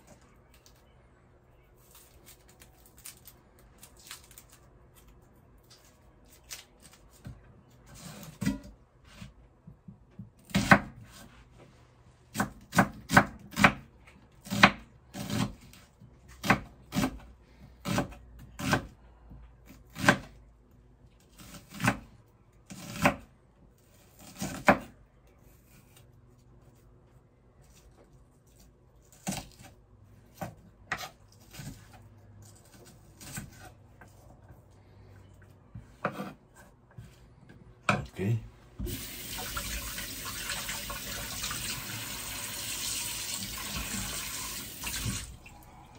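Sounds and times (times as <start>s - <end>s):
knife chopping on wooden board: 10.2s - 11.2s, 12.3s - 13.8s, 22.7s - 23.2s, 35.8s - 37.0s.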